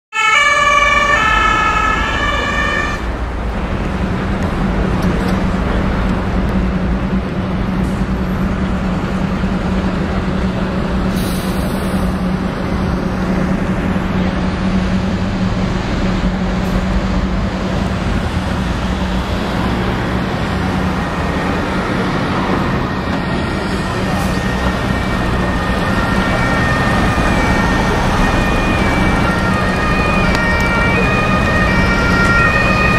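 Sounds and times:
emergency vehicle siren: 0.1s - 3.6s, 11.3s - 32.9s
street traffic noise: 0.1s - 32.9s.

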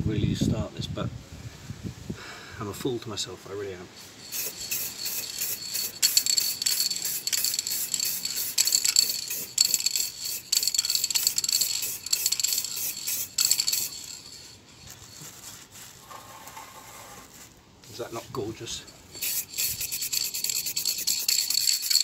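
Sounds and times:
aerosol spray can hissing: 4.0s - 15.3s, 19.1s - 22.0s.

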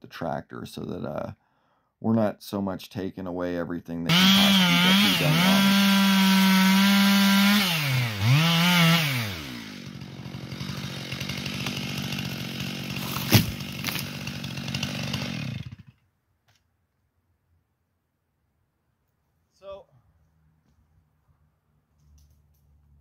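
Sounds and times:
chainsaw revving and idling: 4.1s - 16.0s.

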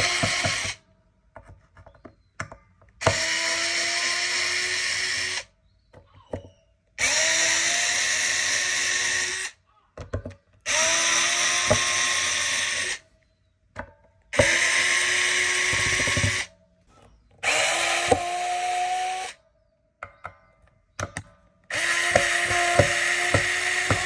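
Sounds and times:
power drill whining: 0.0s - 0.8s, 3.0s - 13.0s, 14.3s - 19.4s, 21.2s - 24.0s.

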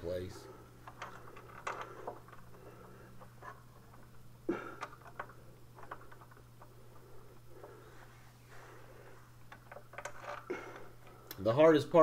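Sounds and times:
metal clicks and scrapes: 9.5s - 11.1s.

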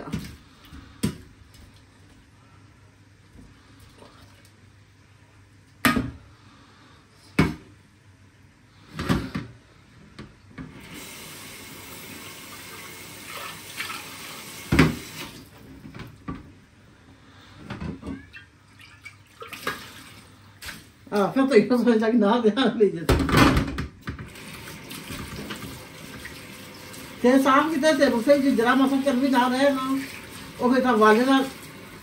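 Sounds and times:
tap running into a sink: 13.8s - 16.4s.

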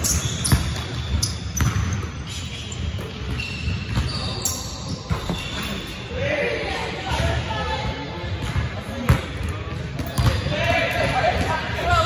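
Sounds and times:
sneaker squeaks: 0.0s - 6.1s.

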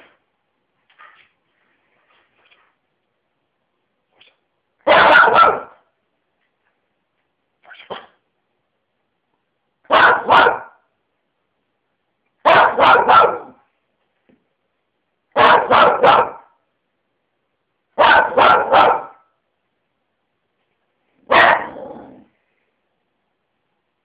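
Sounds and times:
small dog barking: 4.8s - 5.8s, 9.9s - 10.8s, 12.4s - 13.6s, 15.4s - 16.6s, 18.0s - 19.3s, 21.2s - 22.2s.

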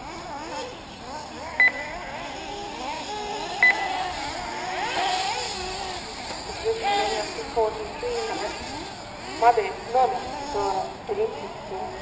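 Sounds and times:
small engines whining: 0.0s - 12.0s
loud electronic beeps: 1.6s - 1.8s, 3.6s - 3.9s.

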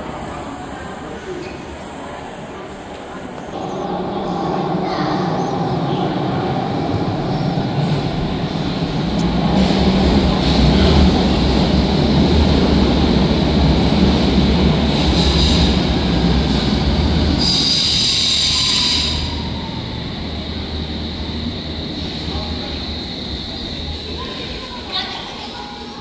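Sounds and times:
train rumbling: 0.0s - 26.0s
train brake squeal: 17.4s - 19.9s.

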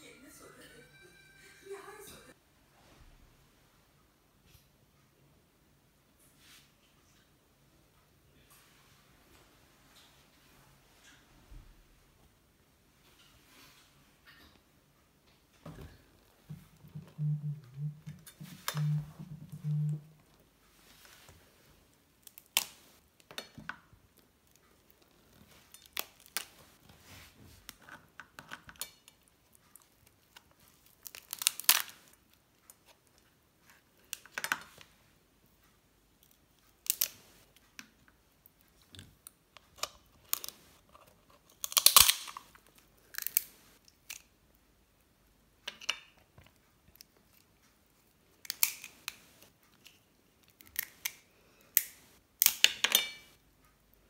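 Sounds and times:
lobster shell cracking: 30.8s - 32.1s, 39.8s - 44.3s, 48.5s - 49.1s.

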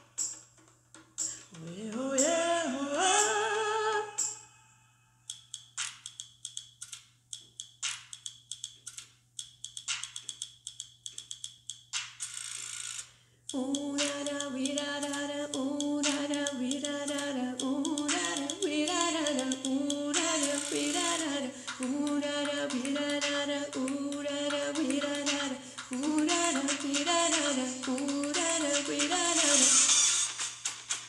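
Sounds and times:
woman singing: 1.5s - 4.4s, 13.5s - 29.9s.

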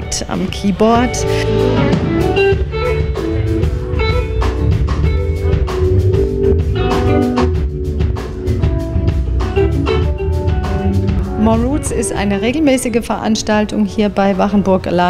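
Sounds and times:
drum kit beat: 0.0s - 12.8s
keyboard: 0.0s - 15.0s
electric guitar: 1.2s - 11.8s.

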